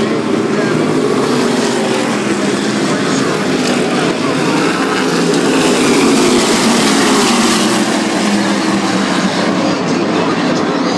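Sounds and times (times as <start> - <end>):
race cars at full throttle: 0.0 - 10.9.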